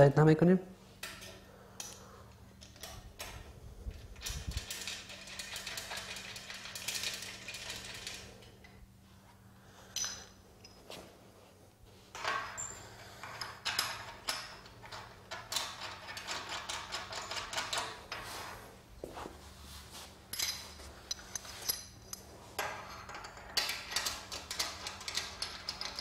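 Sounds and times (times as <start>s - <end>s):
metal rails and clamps clinking: 2.6s - 8.8s, 12.1s - 18.6s, 20.3s - 26.0s.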